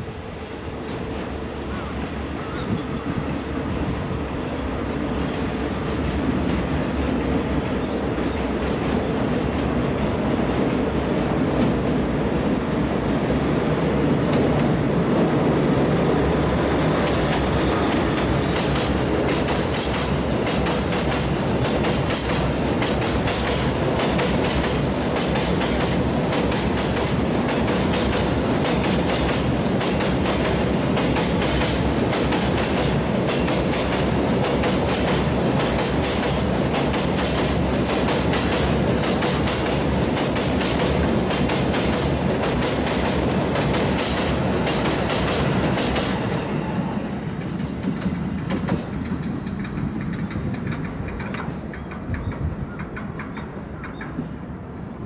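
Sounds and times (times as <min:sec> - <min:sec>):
diesel locomotive engine: 0:00.0 - 0:55.0
wagon wheels clattering over rail joints: 0:47.2 - 0:54.2.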